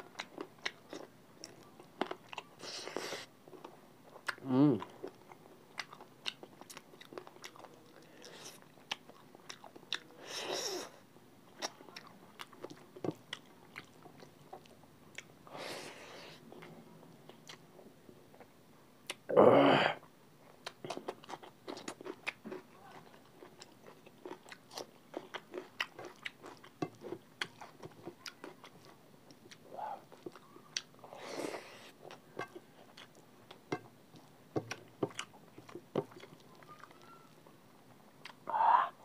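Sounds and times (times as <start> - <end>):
chewing and wet mouth smacks: 3.6 - 10.1, 38.2 - 38.4.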